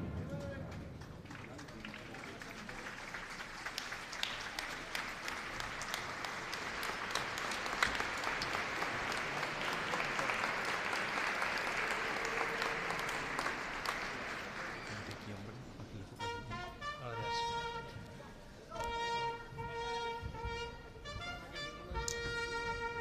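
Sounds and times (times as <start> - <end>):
crowd applauding: 0.0 - 15.8.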